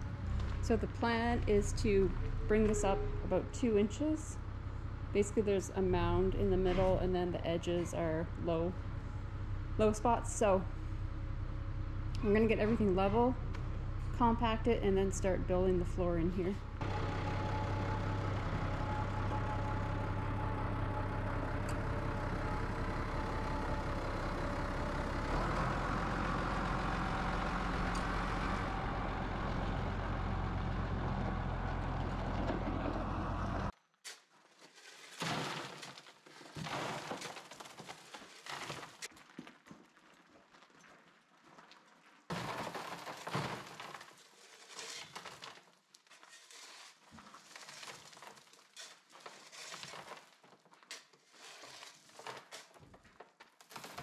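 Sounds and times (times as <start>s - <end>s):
diesel engine running under load: 0.0s - 33.7s
gravel crunching and scraping: 0.0s - 54.0s.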